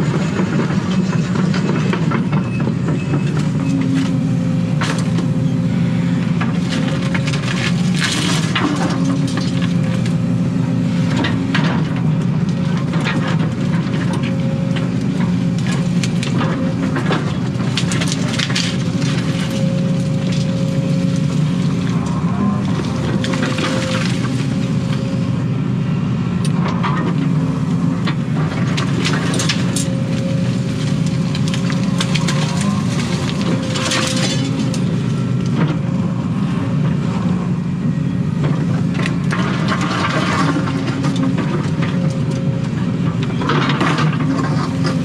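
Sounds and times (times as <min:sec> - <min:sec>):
excavator diesel engine running: 0:00.0 - 0:45.0
roots and wood cracking: 0:06.2 - 0:25.2, 0:26.5 - 0:36.6.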